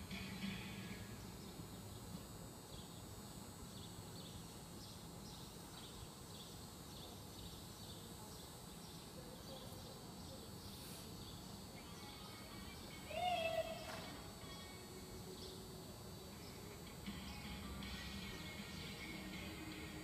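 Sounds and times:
faint music: 0.0 - 20.0
low steady background noise: 0.0 - 20.0.

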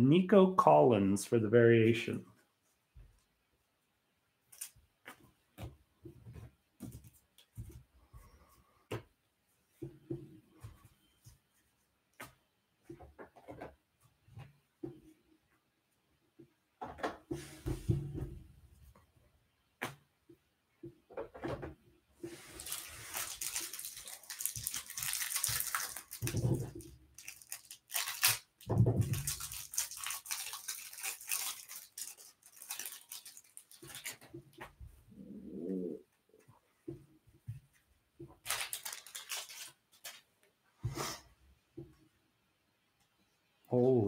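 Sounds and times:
paper cards rustling: 22.3 - 34.6, 38.4 - 40.3.

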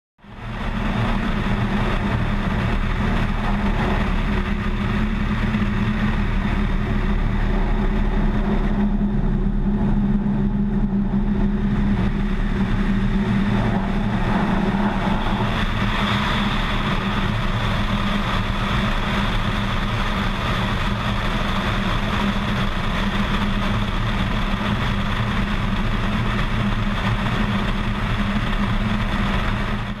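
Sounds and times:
light aircraft engine droning: 0.2 - 30.0
air rushing past: 0.7 - 19.6.

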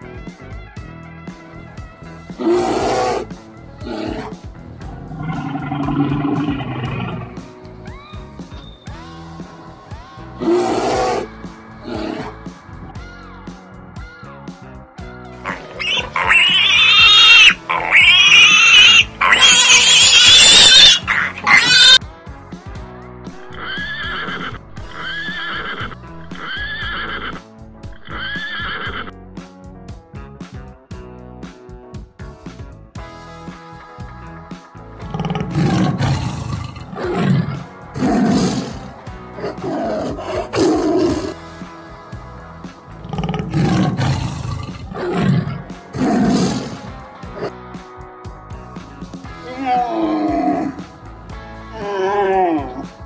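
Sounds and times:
quiet background music: 0.0 - 29.7, 32.9 - 53.0
pig squealing: 2.4 - 4.4, 5.0 - 7.5, 10.4 - 12.4, 15.5 - 22.0, 23.4 - 29.1, 35.0 - 41.4, 43.0 - 47.5
tiger roaring and snarling: 2.4 - 7.5, 10.4 - 12.4, 15.5 - 22.0, 35.0 - 41.5, 42.9 - 47.6, 49.4 - 50.9, 51.7 - 53.0.

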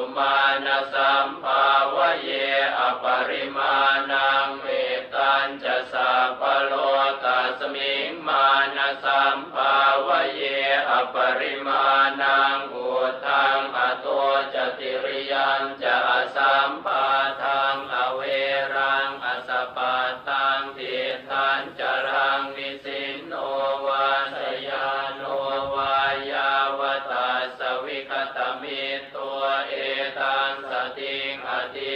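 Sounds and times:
rhythmic chanting: 0.0 - 31.9.

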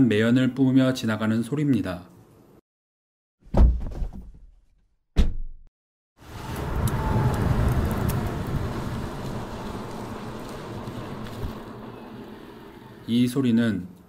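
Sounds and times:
steady rushing noise: 6.2 - 13.3.

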